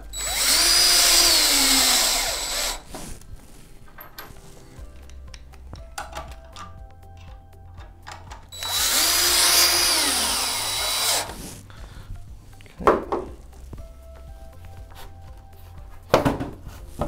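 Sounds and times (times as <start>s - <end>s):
power drill driving screw: 0.0s - 3.2s, 8.5s - 11.6s
thump: 16.1s - 16.6s.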